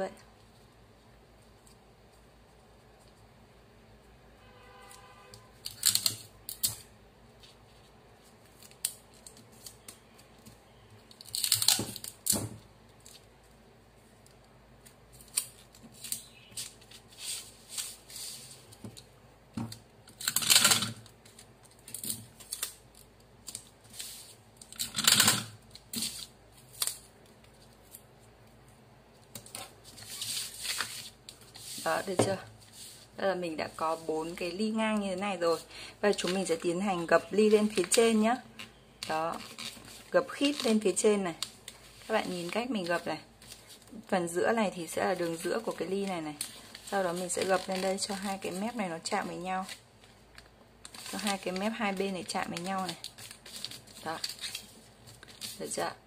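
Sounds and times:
paper being handled: 0:50.8 - 0:55.8.

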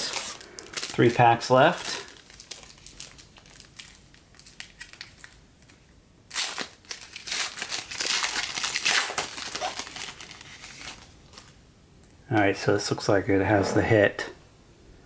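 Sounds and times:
foil wrapper crinkling: 0:00.0 - 0:11.6.

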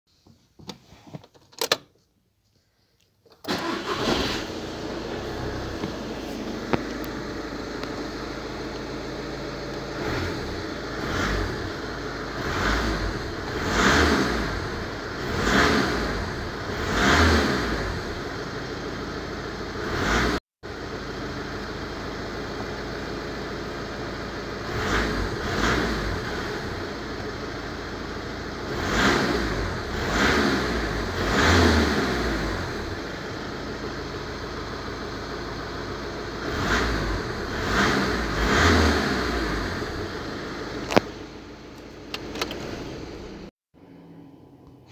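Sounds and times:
car engine revving: 0:03.5 - 0:20.9, 0:24.5 - 0:27.2, 0:28.2 - 0:33.7, 0:36.3 - 0:44.9.

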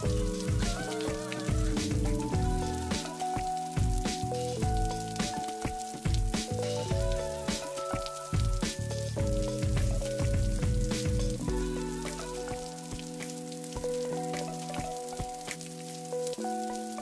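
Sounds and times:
calm background music: 0:00.0 - 0:17.0.

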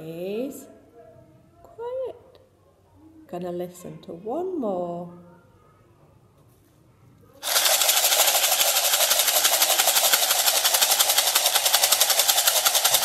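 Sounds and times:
plastic bottle shaker rattling: 0:07.4 - 0:13.0.

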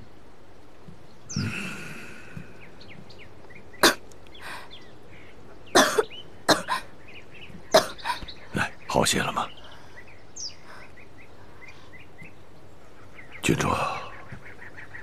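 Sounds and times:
woman coughing: 0:05.8 - 0:06.9, 0:07.8 - 0:08.2.

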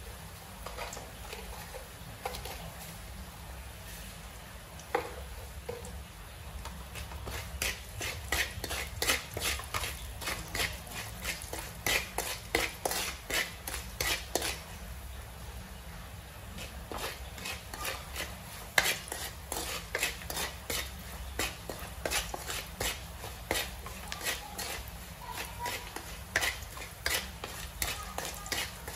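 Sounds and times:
spatula scraping metal wok: 0:06.6 - 0:15.0, 0:16.4 - 0:28.9.

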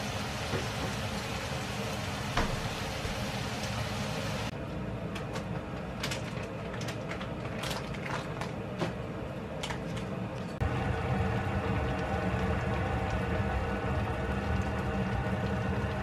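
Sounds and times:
vegetables sizzling in a pan: 0:00.0 - 0:04.5.

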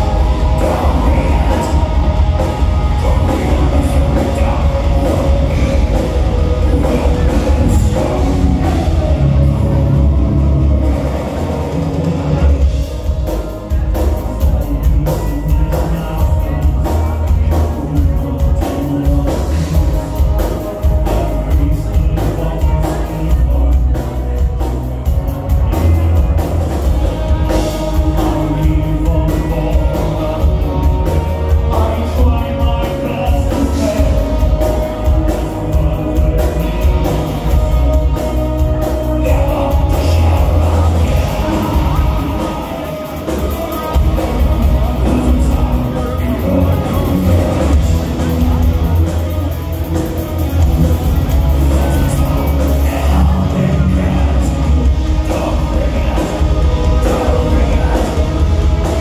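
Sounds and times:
bass guitar: 0:00.0 - 0:59.0
distorted guitars: 0:00.0 - 0:59.0
drum kit fast beat: 0:00.0 - 0:59.0
vocals over metal band: 0:00.0 - 0:59.0.

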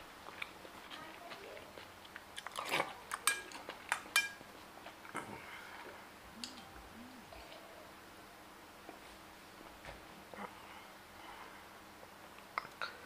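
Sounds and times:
eating sounds: 0:00.2 - 0:07.9
metal spoon clinking on bowl: 0:03.2 - 0:04.4.

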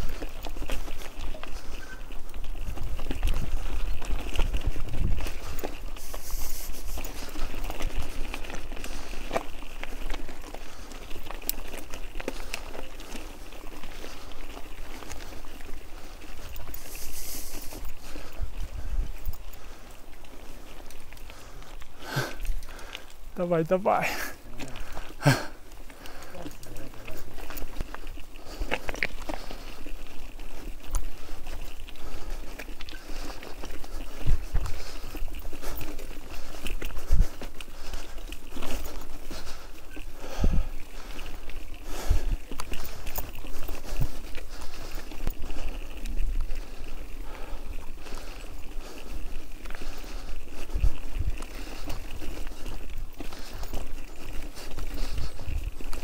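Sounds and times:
bicycle clicks and rattles: 0:00.0 - 0:56.0
wind rumble on microphone: 0:02.5 - 0:08.4, 0:33.9 - 0:35.8, 0:49.7 - 0:53.3.

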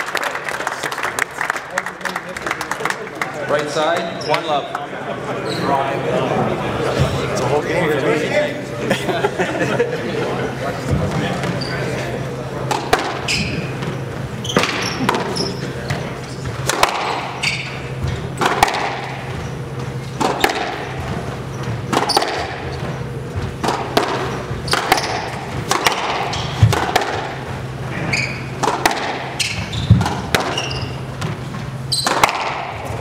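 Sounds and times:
steady low hum: 0:00.0 - 0:33.0
sneakers squeaking on hardwood: 0:04.1 - 0:04.7, 0:10.8 - 0:12.1, 0:12.7 - 0:33.0
squash ball cracking off walls: 0:12.7 - 0:13.3, 0:14.5 - 0:15.3, 0:16.6 - 0:17.4, 0:18.4 - 0:19.2, 0:20.2 - 0:20.9, 0:21.9 - 0:22.6, 0:23.6 - 0:27.4, 0:28.6 - 0:33.0.

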